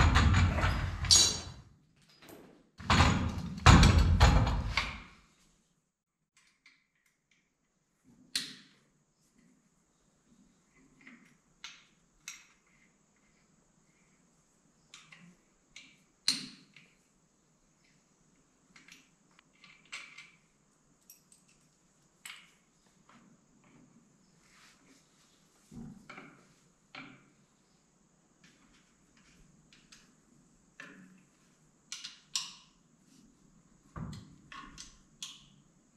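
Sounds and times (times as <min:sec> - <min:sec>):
clicks and taps on fittings: 0:06.3 - 0:09.4, 0:10.8 - 0:12.9, 0:14.9 - 0:17.0, 0:31.9 - 0:32.8, 0:34.0 - 0:35.6.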